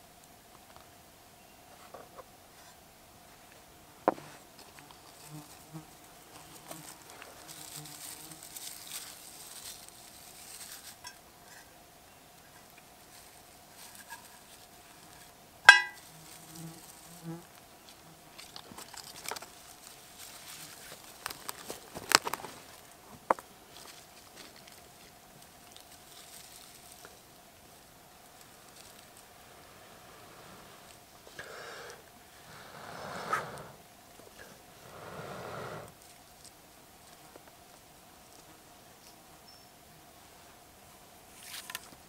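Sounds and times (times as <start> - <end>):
flies buzzing: 4.0 - 10.0, 14.4 - 40.2
tinder rustling: 4.1 - 11.6, 12.5 - 31.2
ringing metal clink: 15.7 - 16.0.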